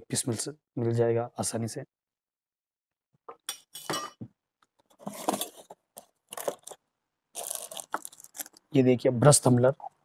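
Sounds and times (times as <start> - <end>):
cardboard and plastic wrapping rustling: 4.9 - 6.8, 7.4 - 8.6.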